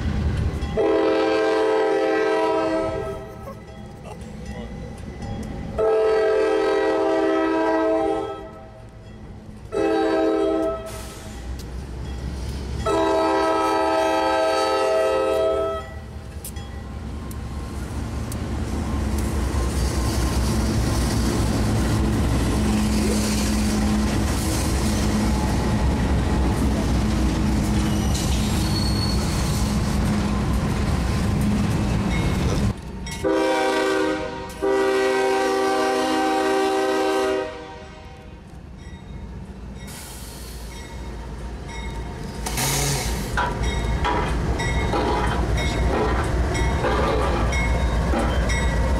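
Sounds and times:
steel wheels on rail: 0.0 - 48.9
locomotive horn blasts: 0.8 - 3.3, 5.8 - 8.8, 9.7 - 11.1, 12.8 - 16.0, 33.2 - 38.4.

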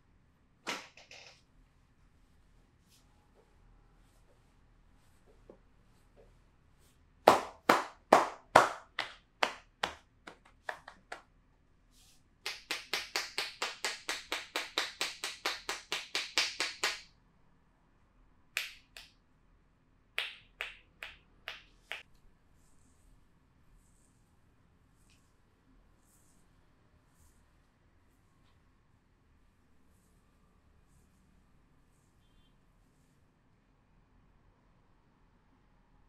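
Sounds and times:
hands slapping body: 7.3 - 11.3, 12.4 - 17.1.

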